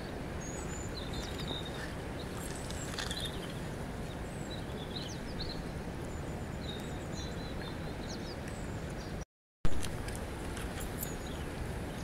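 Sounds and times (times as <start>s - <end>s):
small birds chirping: 0.0s - 9.2s, 10.7s - 12.0s.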